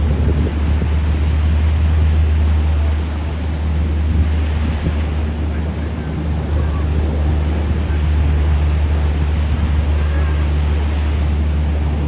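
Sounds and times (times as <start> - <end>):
aircraft engines droning: 0.0 - 12.0
surf washing onto beach: 0.0 - 12.0.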